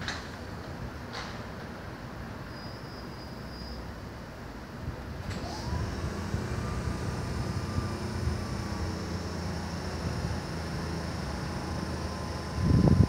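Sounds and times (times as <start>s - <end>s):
diesel locomotive rumble: 4.4s - 13.0s.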